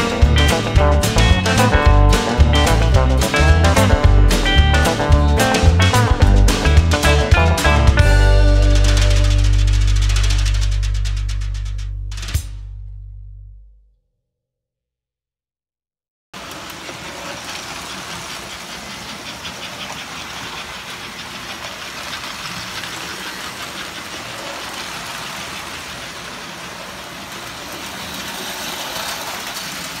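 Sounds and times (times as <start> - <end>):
toy trains on metal track: 5.6 - 11.8, 16.4 - 30.0.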